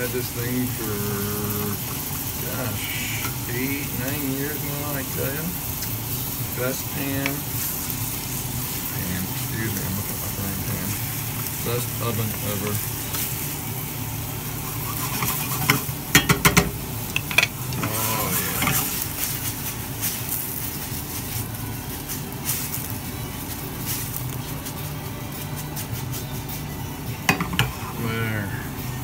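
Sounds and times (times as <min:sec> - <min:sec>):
food sizzling in frying pan: 0:00.0 - 0:29.0
wooden spoon scraping pan: 0:14.6 - 0:15.9
pan shaken on burner: 0:14.6 - 0:16.7.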